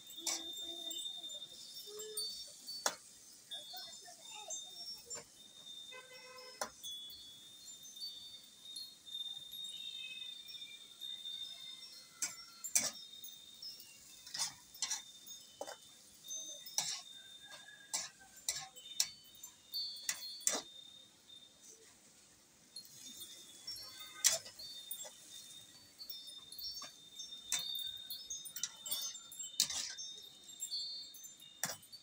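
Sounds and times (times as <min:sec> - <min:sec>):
metal spatula scraping a wok: 0:00.2 - 0:01.0, 0:12.2 - 0:13.0, 0:13.9 - 0:19.2, 0:20.0 - 0:20.7, 0:22.8 - 0:25.8, 0:26.7 - 0:27.7, 0:28.6 - 0:30.5.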